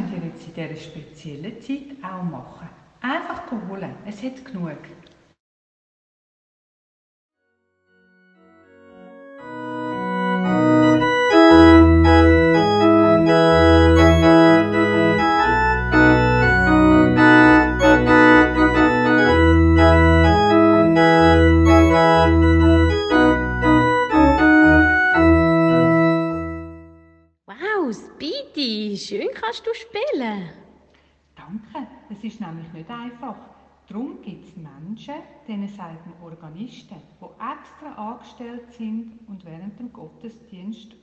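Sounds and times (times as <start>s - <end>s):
pipe organ chords: 7.9s - 27.2s.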